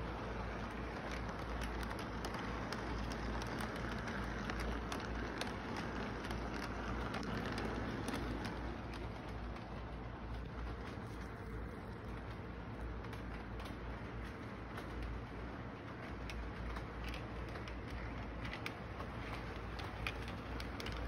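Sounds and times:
model train wheels rumbling: 0.0s - 21.0s
wheel clicks on track: 0.0s - 21.0s.

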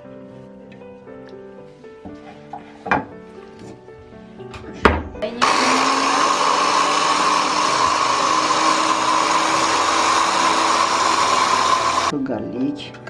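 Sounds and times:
electric hand blender whining: 5.4s - 12.1s.

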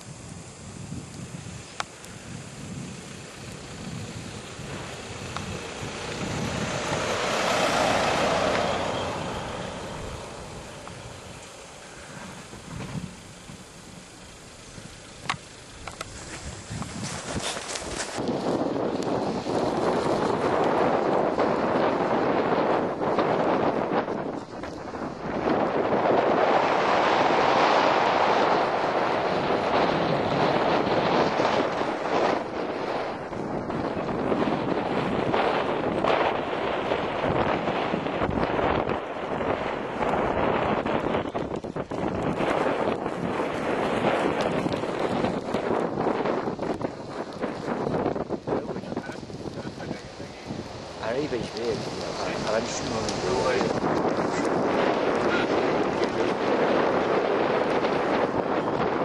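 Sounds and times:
wind buffeting microphone: 0.0s - 59.0s
vehicle driving on snowy road: 0.7s - 59.0s
vehicle driving past on snow: 4.8s - 13.0s.

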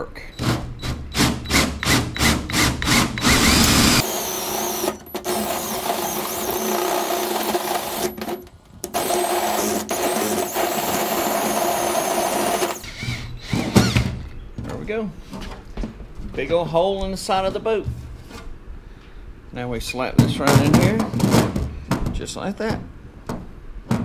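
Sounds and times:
drill hole saw cutting metal: 0.4s - 14.1s.

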